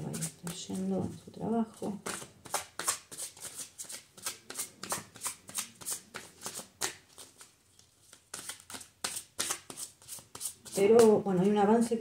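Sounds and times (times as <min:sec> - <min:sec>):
cards being shuffled by hand: 0:01.8 - 0:11.2.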